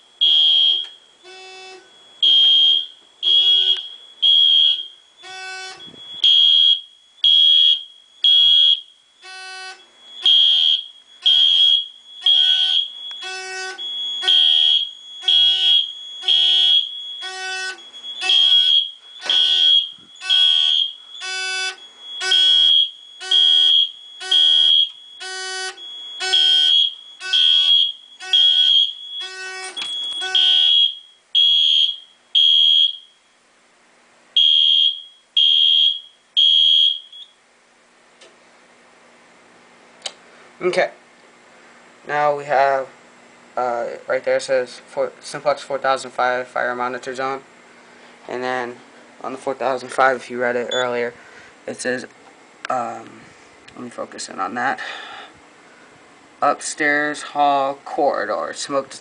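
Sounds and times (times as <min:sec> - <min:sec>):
fire alarm horn blasts: 0:00.0 - 0:33.5, 0:34.4 - 0:37.4.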